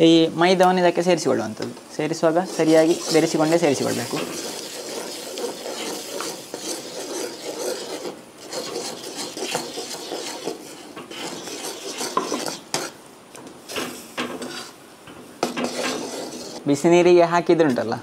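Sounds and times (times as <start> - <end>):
ladle scraping dough in pan: 2.4 - 13.0, 13.7 - 14.8, 15.4 - 16.7.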